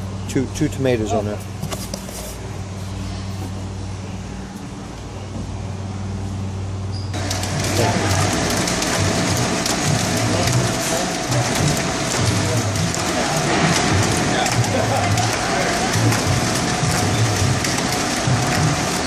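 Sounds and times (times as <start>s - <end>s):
packing machine whining and clattering: 7.0s - 19.0s.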